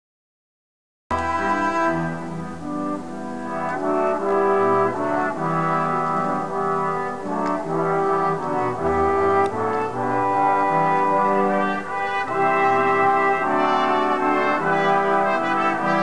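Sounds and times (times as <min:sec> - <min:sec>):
brass ensemble playing chords: 0:01.1 - 0:16.0.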